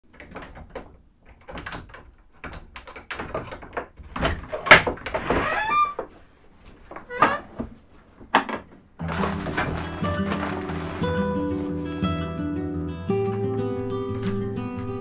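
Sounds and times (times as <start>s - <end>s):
clicks and knocks: 0.1s - 6.1s
rustling: 3.9s - 12.5s
scrape with falling squeak: 5.2s - 6.0s.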